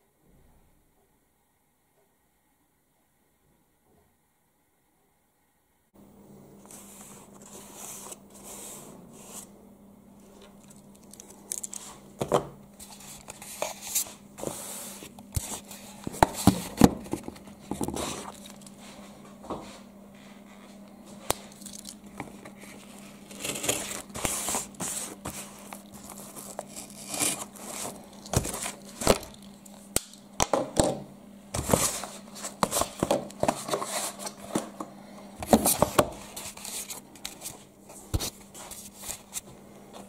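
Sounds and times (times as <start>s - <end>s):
cardboard tearing and crinkling: 23.2s - 29.4s.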